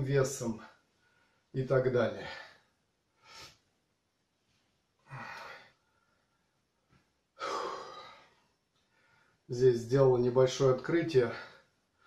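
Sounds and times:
man breathing: 0.8s - 1.6s, 2.2s - 3.6s, 5.0s - 6.6s, 7.4s - 9.5s.

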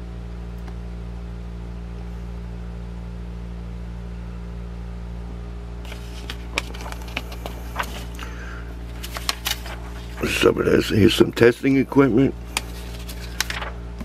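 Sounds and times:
low room hum: 0.0s - 14.0s
paper rustling: 5.8s - 14.0s.

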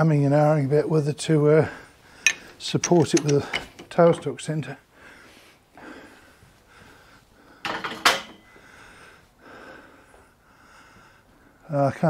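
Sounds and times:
metal items rattling: 2.3s - 4.0s.

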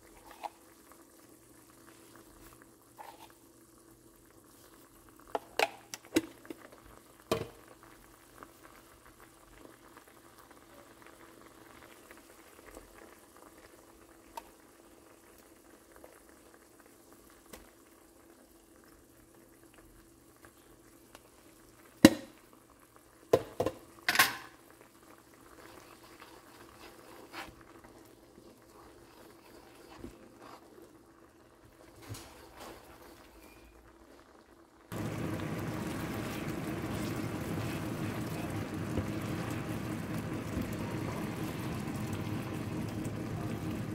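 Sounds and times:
sauce bubbling in a pan: 0.0s - 43.9s.

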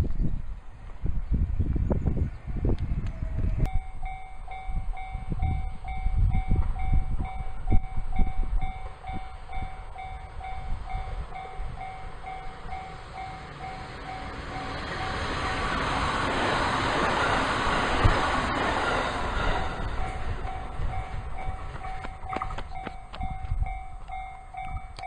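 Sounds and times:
wind rumble on microphone: 0.0s - 25.0s
electric train rushing: 0.8s - 25.0s
level crossing bell ringing: 3.7s - 15.7s, 20.0s - 25.0s.

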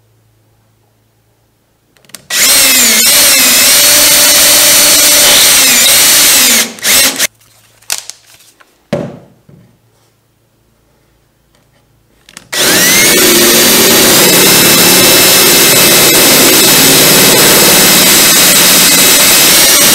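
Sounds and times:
power drill boring: 2.3s - 7.3s, 12.5s - 19.9s.

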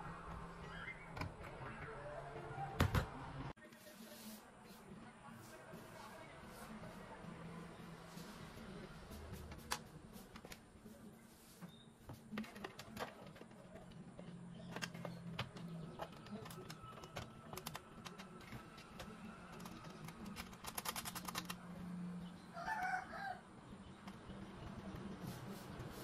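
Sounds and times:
wires clicking and rustling: 12.1s - 21.6s.

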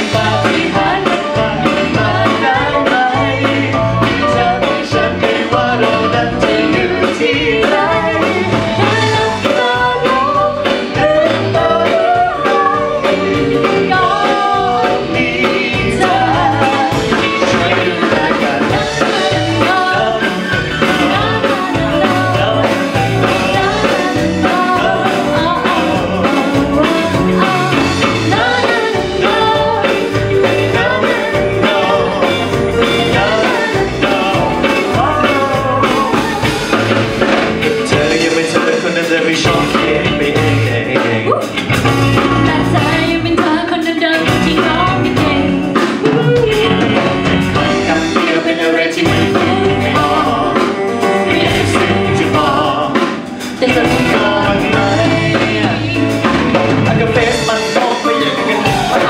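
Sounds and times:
band playing: 0.0s - 59.0s
man and woman singing pop duet: 0.0s - 59.0s.

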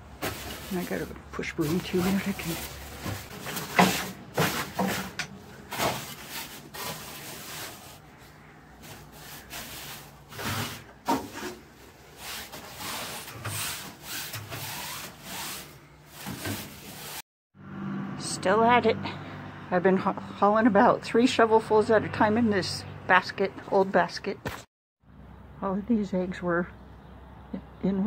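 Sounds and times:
broom scraping wooden walls: 0.0s - 17.2s.

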